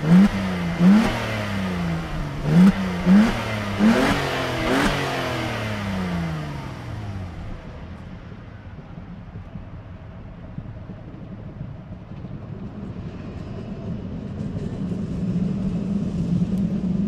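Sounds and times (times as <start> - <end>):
car engine revving: 0.0 - 8.1.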